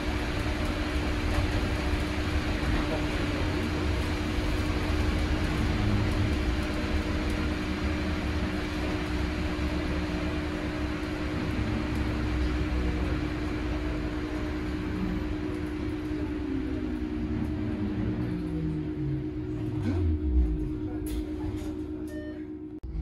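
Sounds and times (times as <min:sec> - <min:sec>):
road rumble and tyre noise: 0:00.0 - 0:20.9
bus cabin hum: 0:00.0 - 0:23.0.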